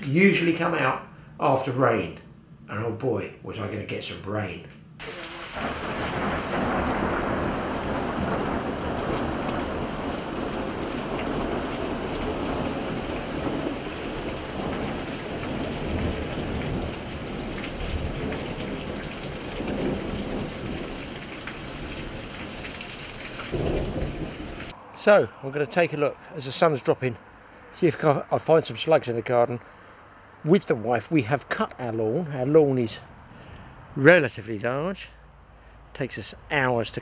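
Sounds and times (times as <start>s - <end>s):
heavy rain falling: 5.0s - 25.2s
thunder rumbling: 5.0s - 26.3s.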